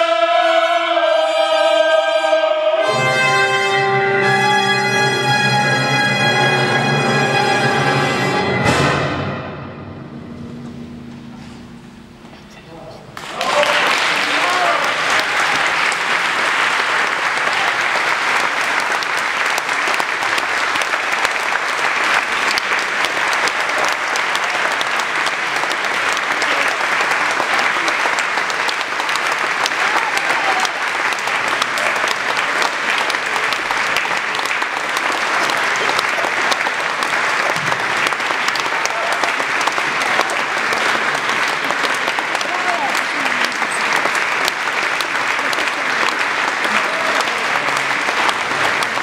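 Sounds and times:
audience applauding: 13.2 - 49.0.

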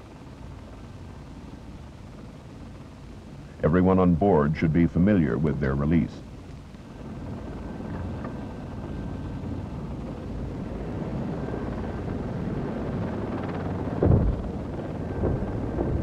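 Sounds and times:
helicopter rotor drone: 0.0 - 16.0
low thump: 14.0 - 14.5.

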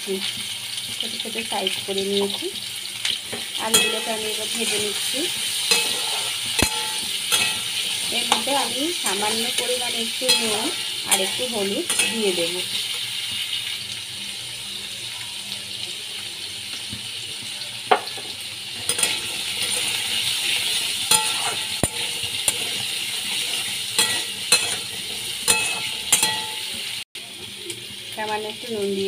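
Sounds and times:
potatoes sizzling in hot oil: 0.0 - 29.0
metal spatula scraping pan: 3.7 - 12.6, 18.8 - 26.8.

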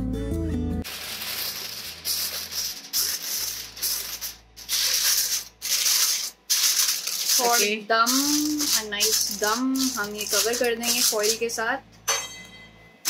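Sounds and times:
aluminium foil crinkling: 0.8 - 11.6.

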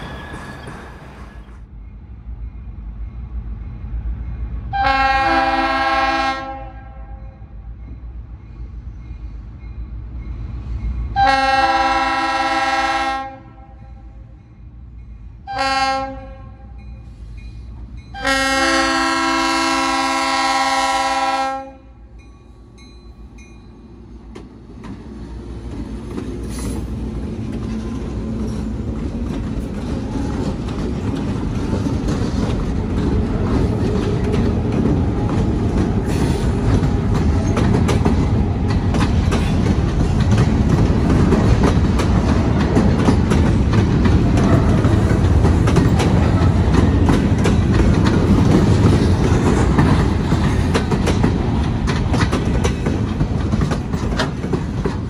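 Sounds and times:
train wheels on rail: 0.0 - 55.0
locomotive air horn blasts: 4.7 - 7.4, 11.2 - 14.2, 15.5 - 16.8, 18.1 - 22.0.

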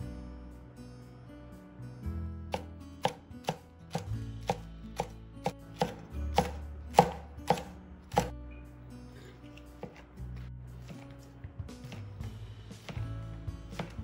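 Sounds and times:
soft background music: 0.0 - 14.0
cleaver chopping on plastic board: 2.6 - 5.1, 5.8 - 8.3, 13.7 - 14.0.

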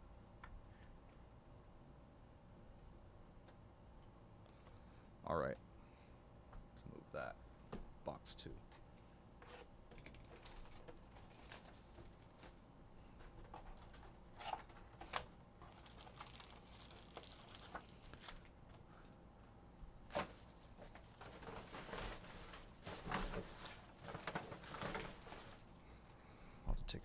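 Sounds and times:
foil wrappers crinkling: 9.9 - 12.6, 13.5 - 19.1, 20.1 - 26.2.

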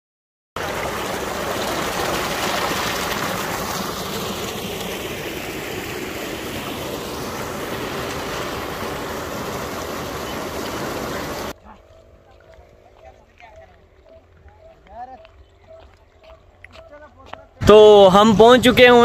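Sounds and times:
water gushing into tank: 0.6 - 11.5.

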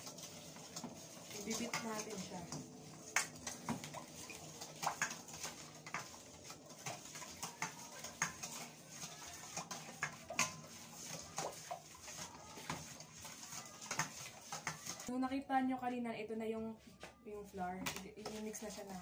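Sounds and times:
spatula scraping metal bowl: 0.0 - 15.1.

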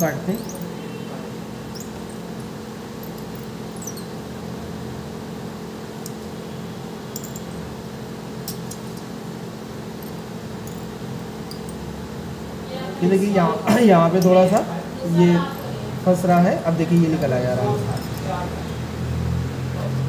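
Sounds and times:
machine humming: 0.0 - 20.0
wire squeaks and ticks: 1.7 - 2.2, 3.0 - 4.2.

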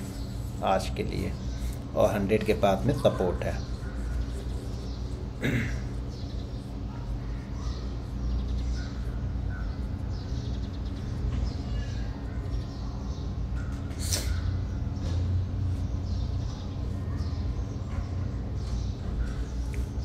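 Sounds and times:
low background hum: 0.0 - 20.0
short bird calls: 11.4 - 15.2.

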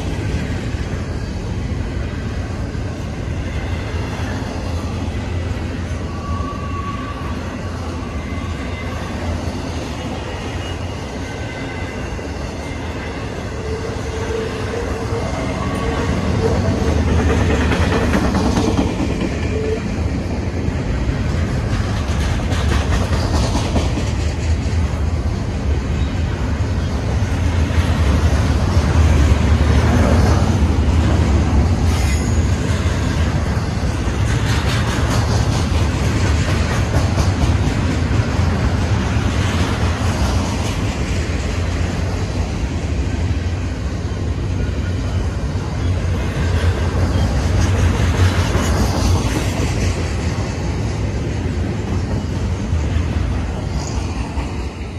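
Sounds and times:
freight train wheels rumbling: 0.0 - 54.9
faint wheel squeal: 5.9 - 9.3, 31.9 - 32.6.

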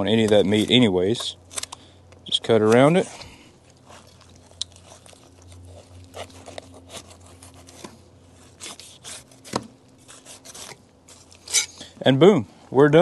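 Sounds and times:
knife cutting fish fillet: 3.8 - 10.8.

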